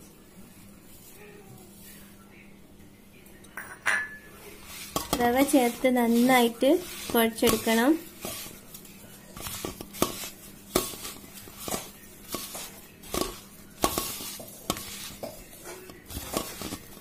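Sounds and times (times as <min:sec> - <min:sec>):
clinks against steel bowl: 0:03.5 - 0:04.3
hands kneading dough in a bowl: 0:04.4 - 0:17.0.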